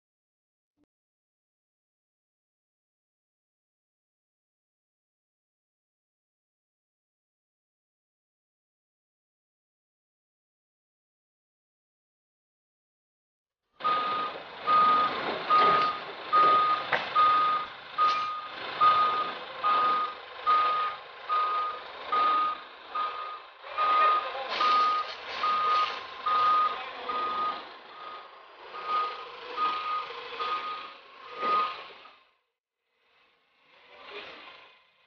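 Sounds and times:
reversing alarm beeping: 13.8s - 32.0s
forklift machine noise: 13.8s - 32.4s, 33.0s - 35.0s.

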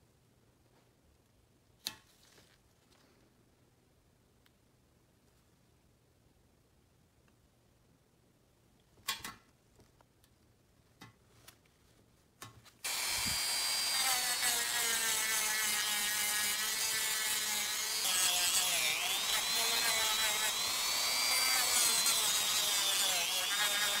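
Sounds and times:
rotary tool whining: 12.8s - 24.0s.

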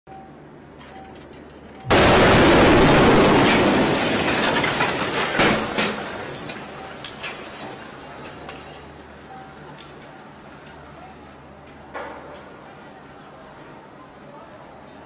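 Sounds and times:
loud explosion blast: 1.9s - 6.2s.

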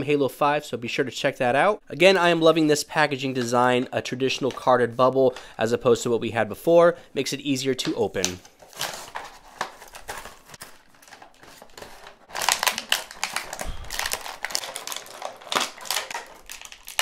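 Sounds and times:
plastic packaging crinkling: 8.2s - 17.0s.

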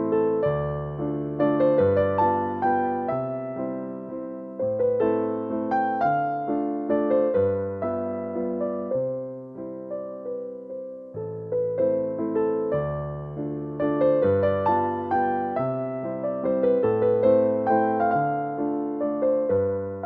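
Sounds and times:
piano chords over bass notes: 0.0s - 20.0s.

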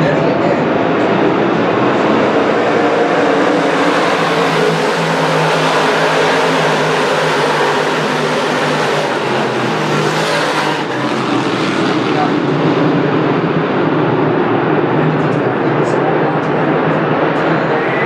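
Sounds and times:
race car engines droning: 0.0s - 18.0s.

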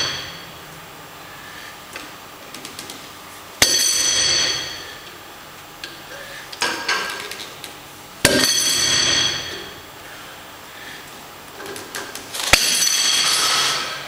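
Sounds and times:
metallic clanks of weight plates: 8.3s - 9.8s, 12.4s - 14.0s.

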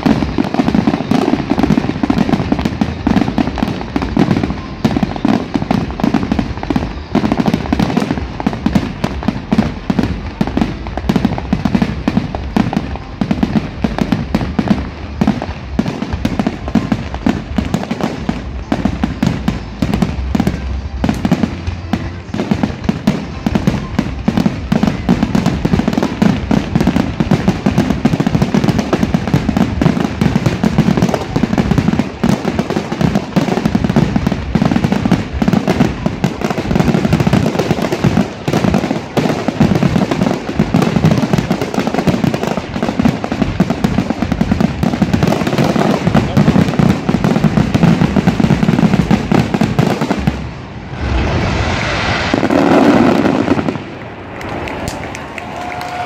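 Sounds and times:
fireworks bursting: 0.0s - 56.0s
low rumble: 50.2s - 54.9s.

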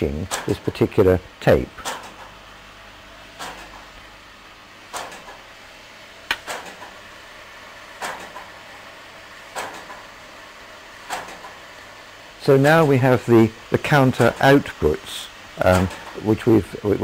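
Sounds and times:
machine clicking: 1.8s - 2.3s, 3.4s - 3.9s, 4.9s - 5.4s, 6.3s - 6.9s, 8.0s - 8.5s, 9.5s - 10.0s, 11.1s - 11.6s, 15.6s - 16.2s.

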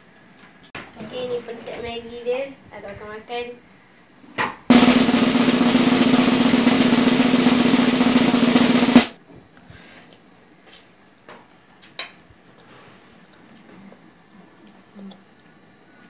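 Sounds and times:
snare drum roll: 4.7s - 9.2s.

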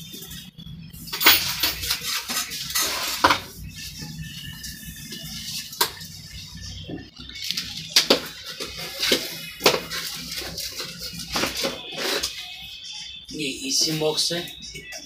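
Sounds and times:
rustling and handling noise: 7.3s - 12.6s.

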